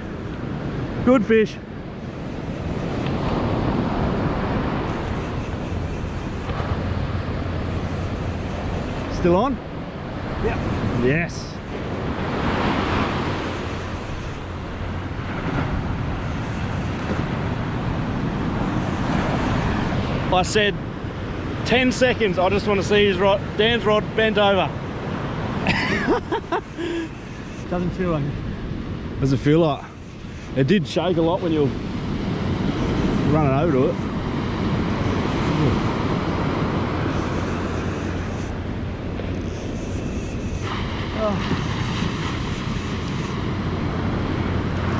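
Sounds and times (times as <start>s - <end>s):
wind buffeting microphone: 0.0s - 44.9s
surf washing onto beach: 6.5s - 27.2s, 30.5s - 39.4s, 40.6s - 44.9s.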